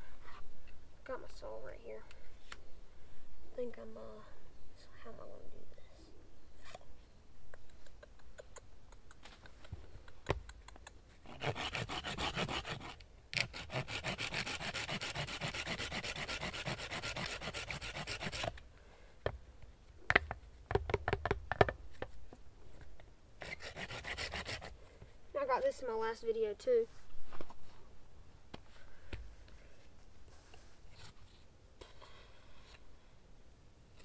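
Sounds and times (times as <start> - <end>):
hand saw cutting a log: 11.2 - 18.6, 23.4 - 24.8.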